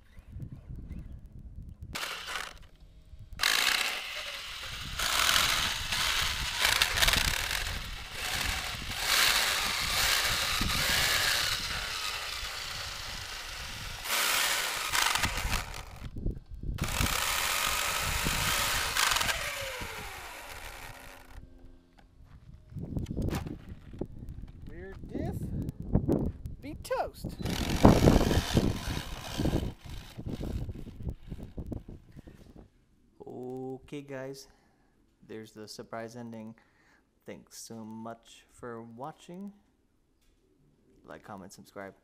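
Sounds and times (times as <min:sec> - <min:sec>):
differential grinding and crunching: 0:01.9 - 0:22.1, 0:27.4 - 0:32.0
electric drivetrain whirring: 0:02.0 - 0:16.2, 0:16.8 - 0:21.4, 0:27.4 - 0:31.8.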